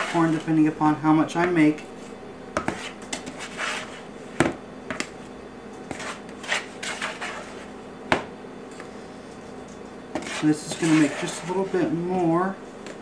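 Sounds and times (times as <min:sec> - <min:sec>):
spoon scraping in plastic bowl: 0:00.0 - 0:00.5, 0:02.6 - 0:04.0, 0:05.9 - 0:07.7, 0:10.2 - 0:12.0.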